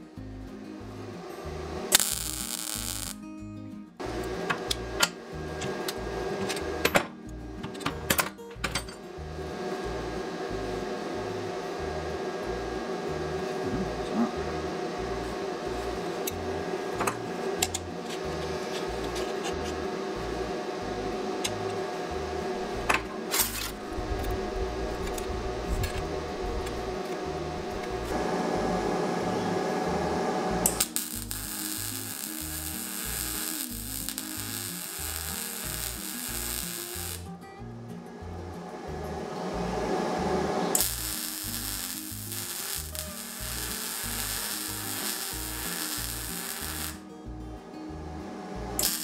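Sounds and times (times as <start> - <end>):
background music with bass: 0.0 - 49.0
welder hissing and crackling: 0.8 - 3.3, 4.0 - 8.1, 9.2 - 37.4, 40.7 - 47.1, 48.6 - 49.0
metal bars and bolts clinking: 7.7 - 9.0.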